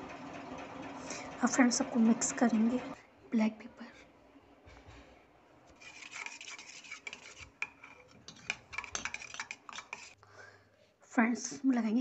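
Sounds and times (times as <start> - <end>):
spoon stirring in metal bowl: 5.7 - 10.2.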